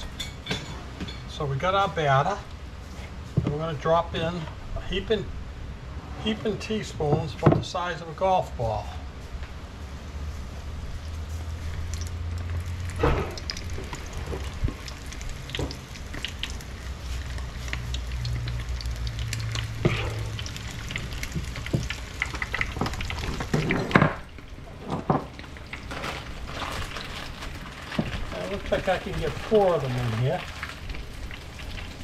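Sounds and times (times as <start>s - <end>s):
batter sizzling in oil: 10.8s - 32.0s.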